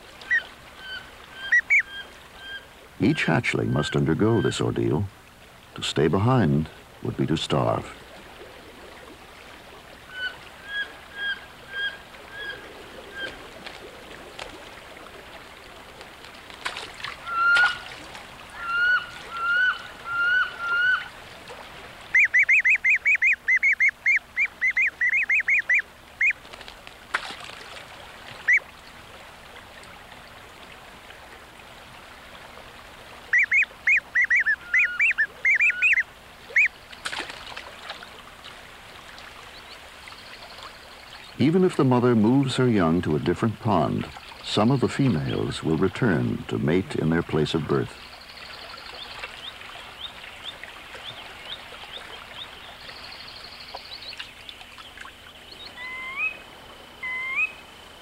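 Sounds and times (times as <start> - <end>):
ducks calling: 0.0 - 5.1, 10.0 - 15.4, 16.0 - 21.3, 22.0 - 26.5, 28.4 - 28.8, 33.2 - 37.3, 39.4 - 57.6
ducklings peeping: 22.1 - 26.4, 33.3 - 36.7.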